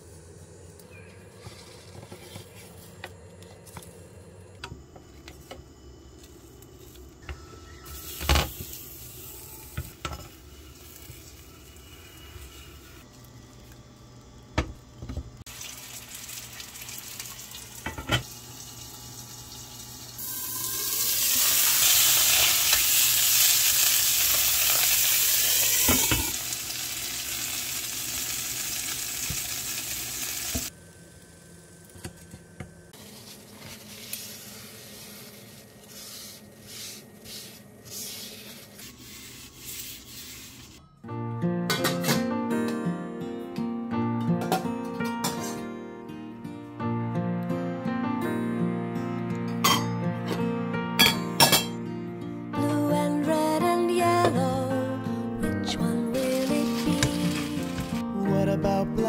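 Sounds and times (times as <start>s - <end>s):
fish sizzling in oil: 15.5s - 30.7s.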